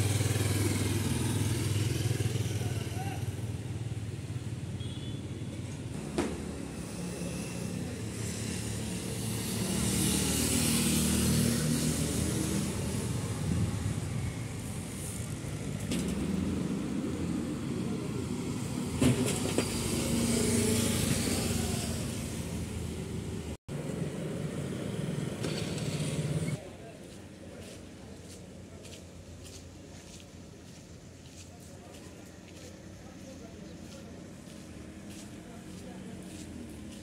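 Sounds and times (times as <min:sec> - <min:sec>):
cars and motorcycles passing: 0:00.0 - 0:26.7.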